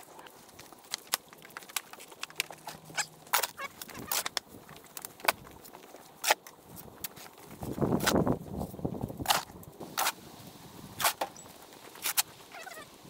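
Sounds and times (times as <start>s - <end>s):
shovel scraping and dumping soil: 9.2s - 12.6s.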